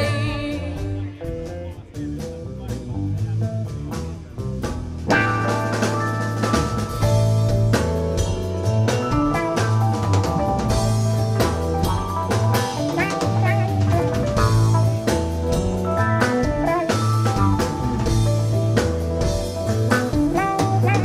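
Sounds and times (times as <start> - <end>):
rock band playing: 0.0 - 21.0
electric guitar lead bending: 5.0 - 21.0.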